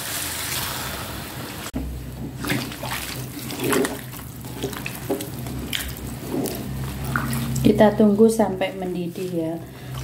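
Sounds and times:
water hissing in hot wok: 0.0 - 1.7
spatula scraping wok: 3.1 - 10.0.

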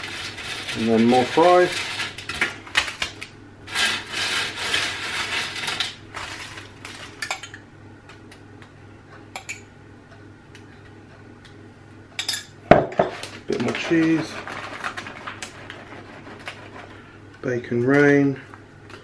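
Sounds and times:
aluminium foil crinkling: 0.0 - 7.2, 13.2 - 17.0.

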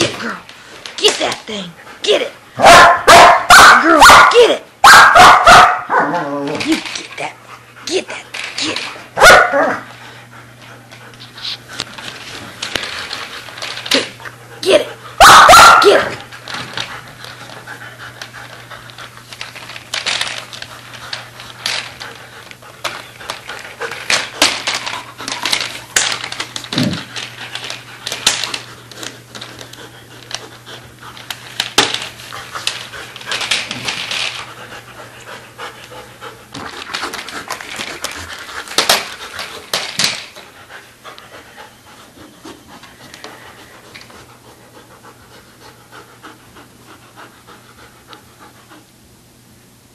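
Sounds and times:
dog panting: 16.2 - 24.4, 27.3 - 31.5, 34.4 - 39.7, 40.4 - 49.0.

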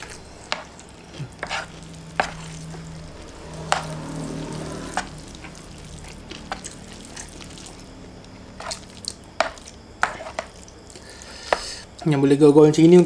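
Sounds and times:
wet chewing: 4.9 - 12.1.

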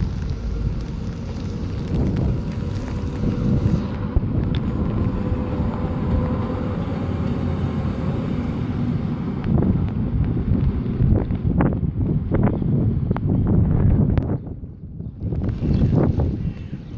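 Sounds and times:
diesel locomotive engine running: 0.0 - 13.0
wind buffeting microphone: 0.0 - 16.9.

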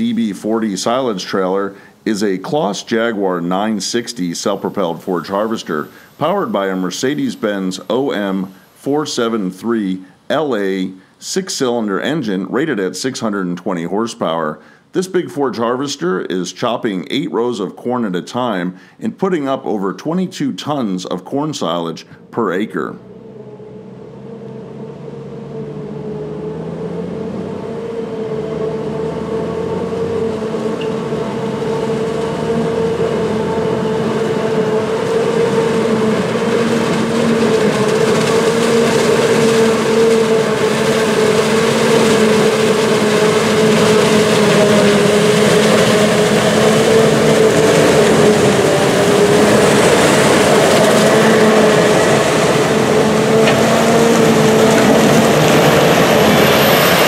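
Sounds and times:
steady high whine: 0.0 - 16.1, 21.1 - 57.0
harvester engine under load: 23.0 - 57.0.

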